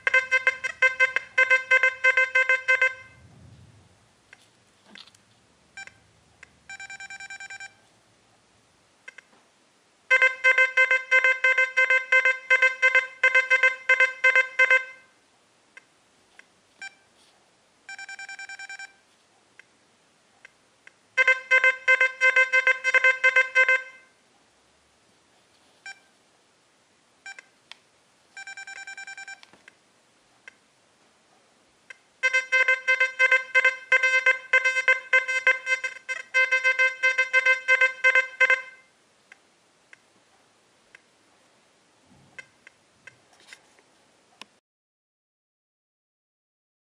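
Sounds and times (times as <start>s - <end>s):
soft steady beep: 0.0s - 3.3s, 5.8s - 6.1s, 6.7s - 7.8s, 16.8s - 17.1s, 17.9s - 19.0s, 25.8s - 26.2s, 27.2s - 27.5s, 28.4s - 29.4s
metal detector pulsing beeps: 6.7s - 7.8s, 17.9s - 19.0s, 28.4s - 29.4s.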